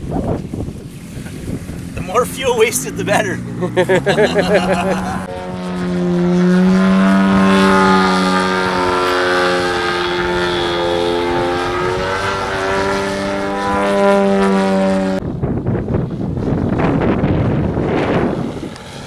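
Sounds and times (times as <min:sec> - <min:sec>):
rushing wind noise: 0:00.0 - 0:03.7, 0:15.1 - 0:19.0
model airplane engine drone: 0:00.0 - 0:19.0.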